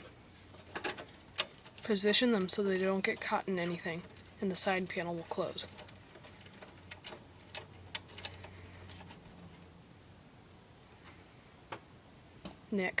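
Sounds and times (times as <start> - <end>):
clicks of cables and plastic parts: 5.6 - 9.6.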